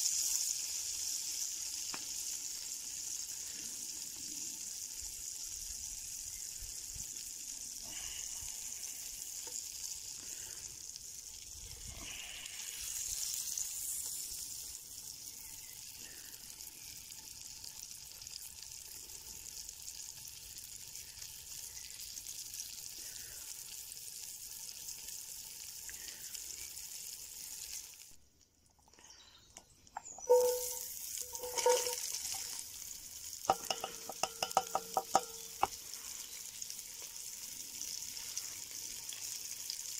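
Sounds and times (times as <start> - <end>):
meat sizzling in hot oil: 0.0 - 28.2, 30.0 - 39.9
ringing knocks on pot: 30.2 - 32.0, 33.5 - 35.6.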